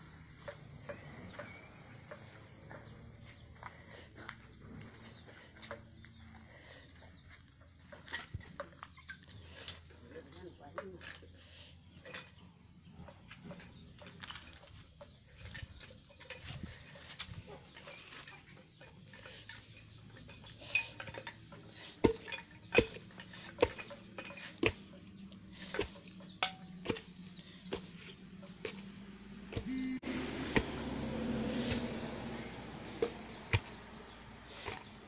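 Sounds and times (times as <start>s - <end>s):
insects chirring: 0.0s - 35.0s.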